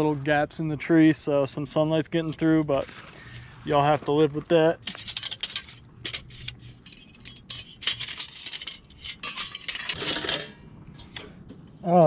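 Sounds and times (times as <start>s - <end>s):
metal panels clinking and scraping: 2.2s - 11.2s.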